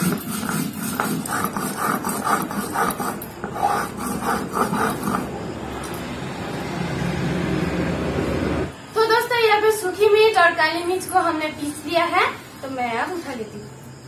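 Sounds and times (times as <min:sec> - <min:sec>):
stone roller scraping on stone: 0:00.0 - 0:06.0.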